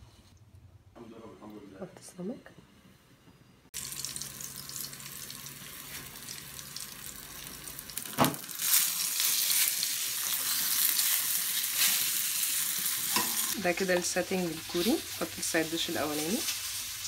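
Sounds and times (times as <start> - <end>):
fish sizzling in a frying pan: 3.8 - 17.0.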